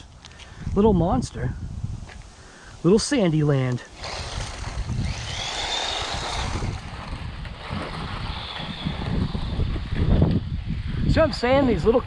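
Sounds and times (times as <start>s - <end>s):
tyre and wind rumble: 0.0s - 12.0s
electric motor high whine: 3.9s - 10.6s.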